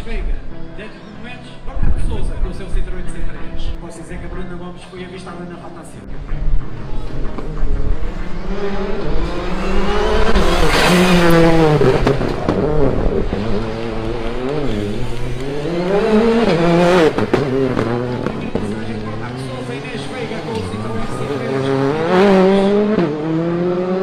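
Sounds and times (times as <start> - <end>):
rally car engine revving: 6.2 - 24.0.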